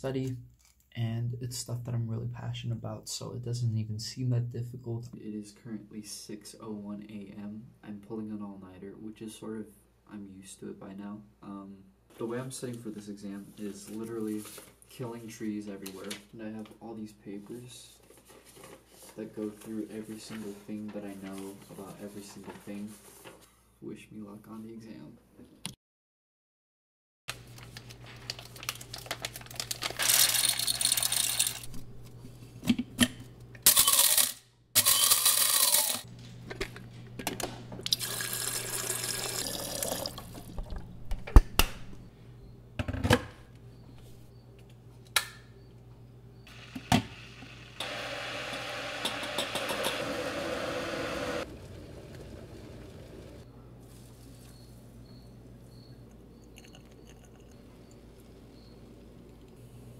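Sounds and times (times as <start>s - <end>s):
running water: 37.9s - 40.8s.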